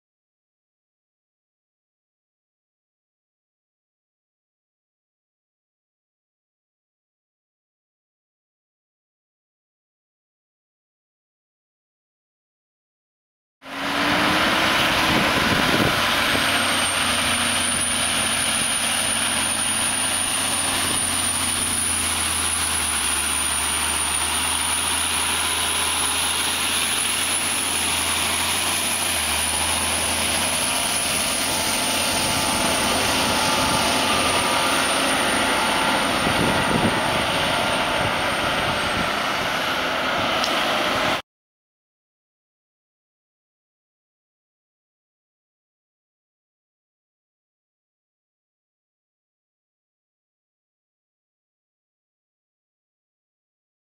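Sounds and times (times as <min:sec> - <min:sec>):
high-pitched whine: 0:13.7 - 0:41.2
tractor diesel engine running: 0:13.7 - 0:41.2.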